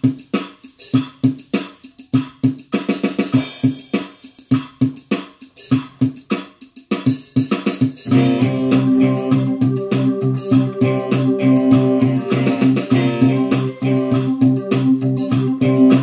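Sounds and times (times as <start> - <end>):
drum hits: 0.0 - 16.0
pitched bass note: 8.1 - 16.0
sustained chords: 8.1 - 16.0.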